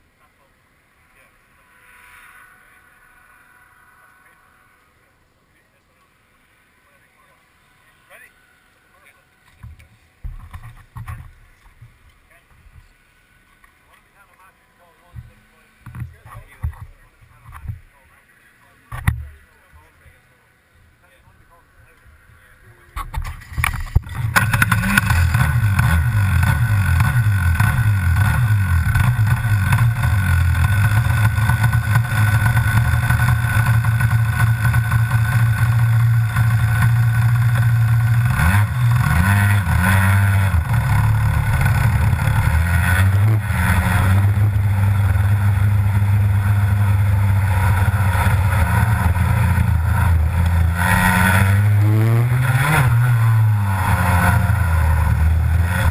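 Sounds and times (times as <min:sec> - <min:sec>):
kart engine starting and revving: 0:23.1 - 0:55.9.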